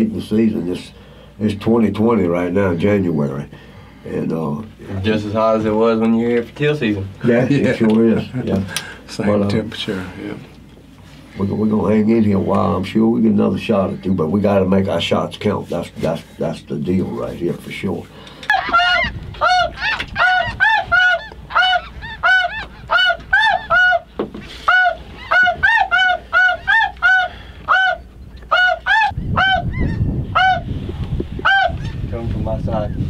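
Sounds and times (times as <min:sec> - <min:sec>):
geese honking: 0:18.5 - 0:30.7, 0:31.4 - 0:31.9.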